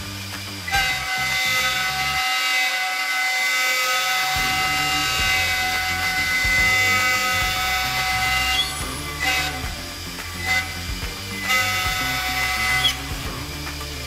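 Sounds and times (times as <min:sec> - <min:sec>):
router spindle whine: 0:00.0 - 0:14.0
end mill cutting wood: 0:00.2 - 0:14.0
low rumble: 0:04.4 - 0:14.0.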